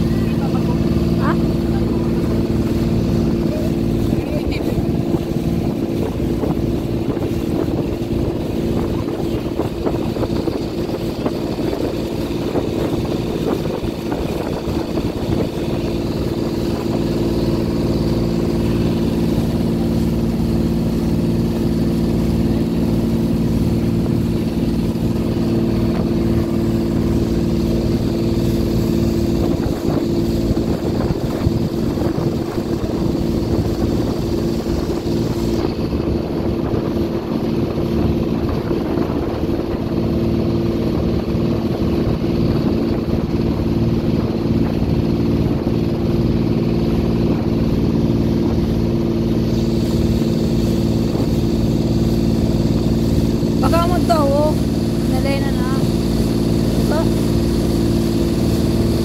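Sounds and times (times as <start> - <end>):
boat engine droning: 0.0 - 59.0
water rushing along hull: 0.0 - 59.0.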